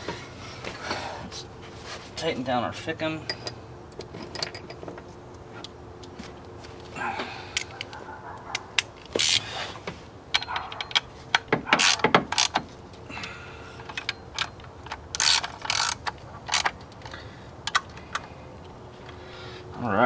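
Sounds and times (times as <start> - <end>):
socket ratchet clicking: 8.8 - 9.4, 10.3 - 12.6, 13.9 - 16.8.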